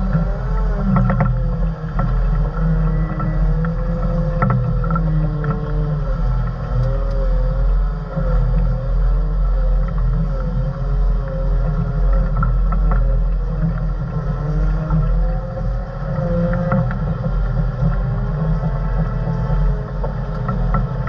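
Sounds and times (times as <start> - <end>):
diesel engine running: 0.0 - 21.0
wavering whine: 0.0 - 21.0
sharp clicks and knocks: 14.8 - 21.0.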